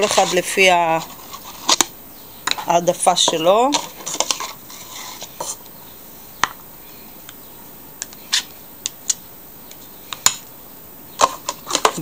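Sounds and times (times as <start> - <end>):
spoon scraping plastic tub: 0.0 - 1.8, 2.5 - 5.6, 11.2 - 12.0.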